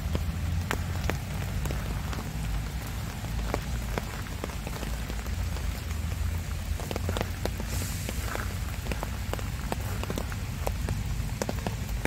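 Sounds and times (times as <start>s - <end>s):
drops tapping leaves: 0.0s - 12.0s
rain on plants: 0.0s - 12.0s.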